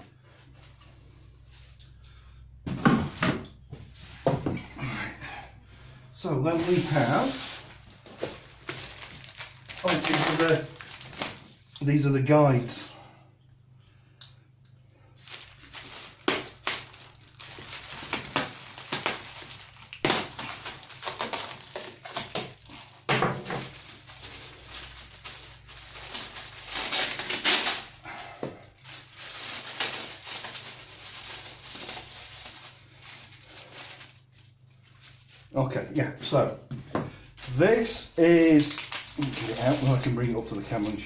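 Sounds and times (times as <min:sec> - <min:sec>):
plastic packaging crinkling: 0:06.5 - 0:11.8, 0:15.2 - 0:35.8, 0:37.2 - 0:41.0.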